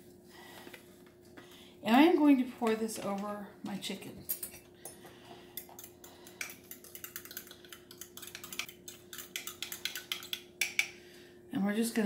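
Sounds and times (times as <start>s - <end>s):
faint steady hum: 0.0s - 12.0s
kitchenware clicking and clinking: 4.1s - 10.9s.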